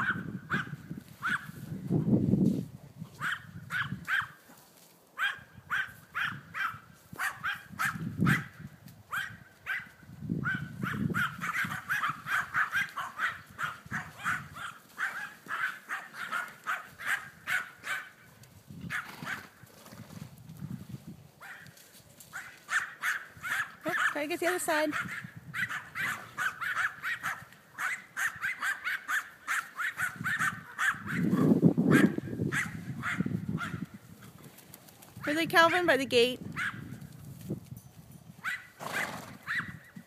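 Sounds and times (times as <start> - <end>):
dog barking in quick yaps: 3.2 - 4.4, 5.2 - 8.5, 9.1 - 18.1, 22.3 - 24.2, 24.9 - 33.8.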